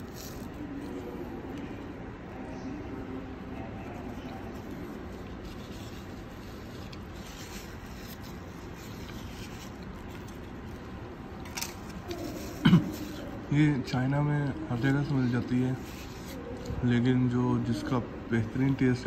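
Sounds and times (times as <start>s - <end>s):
faint rubbing and handling: 0.0s - 19.0s
room background noise: 0.0s - 19.0s.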